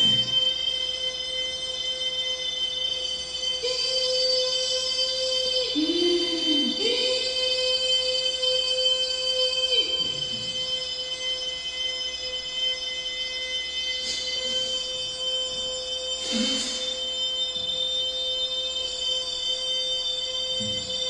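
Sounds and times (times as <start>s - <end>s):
man droning high-pitched tone: 0.0s - 21.0s
man breathing in: 16.2s - 17.0s.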